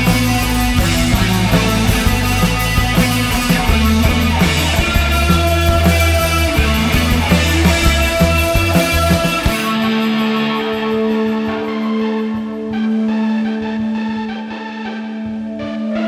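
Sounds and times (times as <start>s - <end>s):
low bass line: 0.0s - 10.0s
drums with cymbals: 0.0s - 11.6s
electric guitar: 0.0s - 16.0s
synthesizer keyboards: 0.0s - 16.0s.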